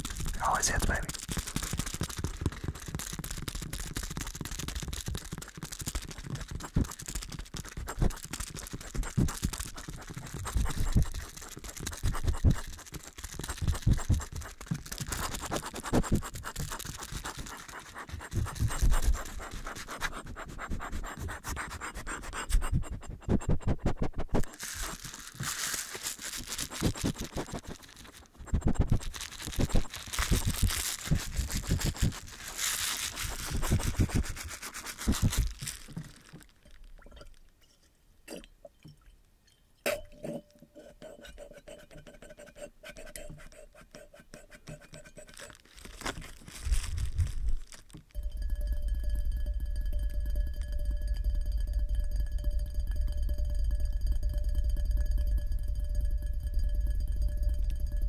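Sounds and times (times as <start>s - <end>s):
scratching on microphone: 0.0s - 36.5s, 40.8s - 48.0s.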